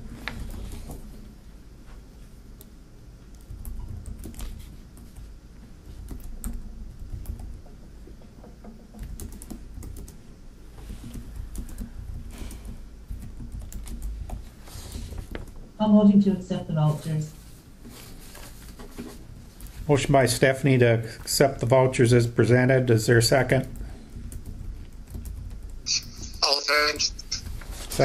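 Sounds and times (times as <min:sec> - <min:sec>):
low room rumble: 0:00.0 - 0:28.0
typing on laptop keyboard: 0:02.6 - 0:15.7, 0:23.3 - 0:27.6.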